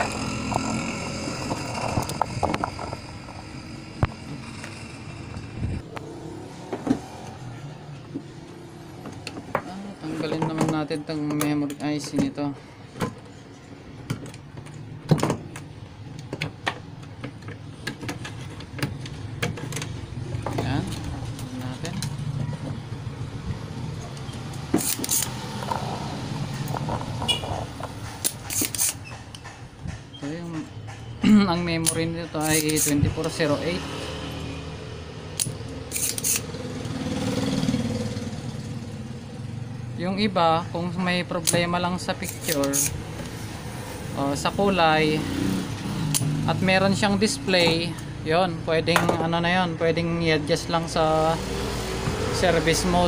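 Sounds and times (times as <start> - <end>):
sharp clicks and taps: 27.8 - 31.1.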